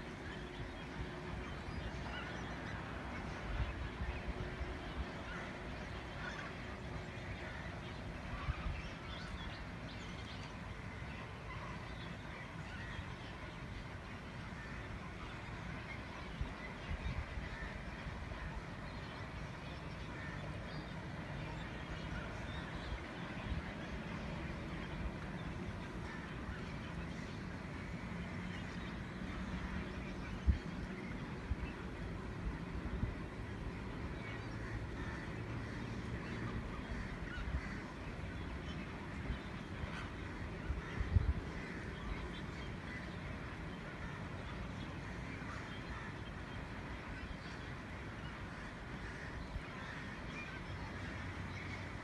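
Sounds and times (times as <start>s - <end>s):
wind rumble on microphone: 0.0s - 52.0s
flamingos honking and chattering: 21.1s - 52.0s.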